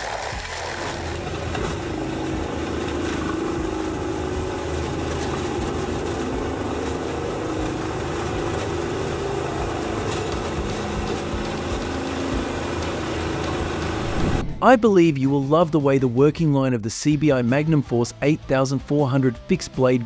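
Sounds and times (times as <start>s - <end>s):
diesel engine running under load: 0.5s - 14.6s.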